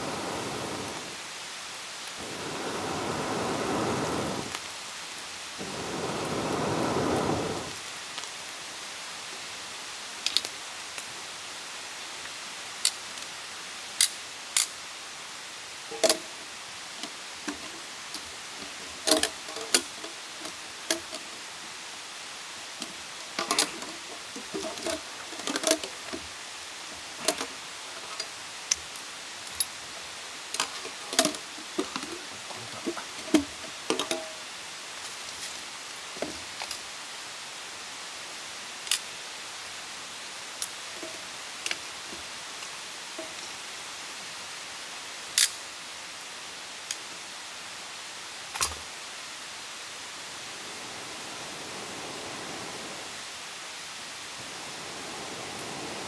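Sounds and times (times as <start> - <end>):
wood fire crackling: 0.0 - 1.4, 2.0 - 11.6, 15.7 - 36.9, 38.8 - 44.2
fire hissing: 0.0 - 13.2, 50.0 - 56.0
fire popping and snapping: 5.6 - 8.4, 10.2 - 11.1.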